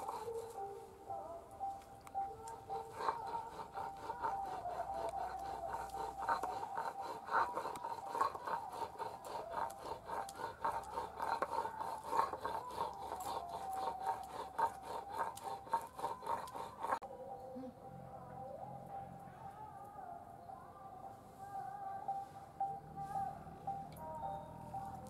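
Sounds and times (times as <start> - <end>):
stone pestle grinding on stone: 0.0 - 0.7, 2.5 - 17.0.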